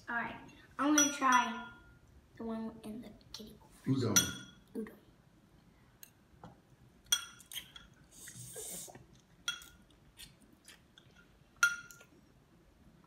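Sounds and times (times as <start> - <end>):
fork clinking on ceramic bowl: 11.6 - 12.1.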